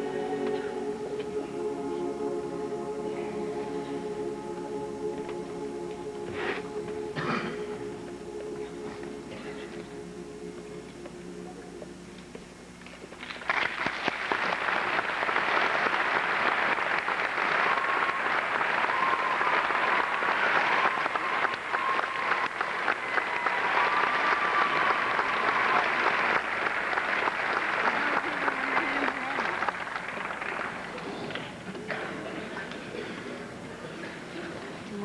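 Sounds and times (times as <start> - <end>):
audience applause: 13.2 - 32.4.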